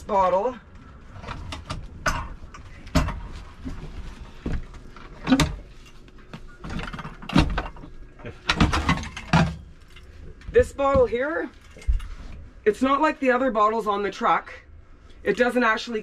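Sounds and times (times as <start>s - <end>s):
equipment knocking and clunking: 6.6s - 9.7s.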